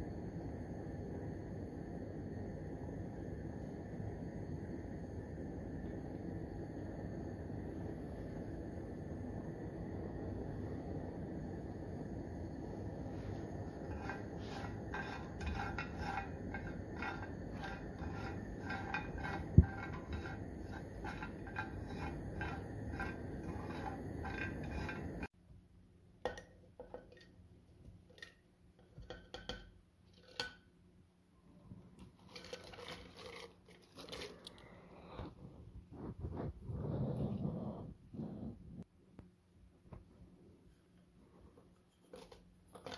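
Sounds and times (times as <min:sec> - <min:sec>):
nuts sizzling in oil: 0:13.2 - 0:25.3.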